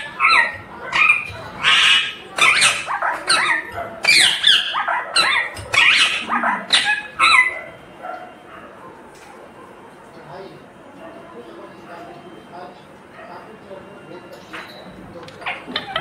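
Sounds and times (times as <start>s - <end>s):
parakeet calling: 0.0s - 7.8s, 15.4s - 16.0s.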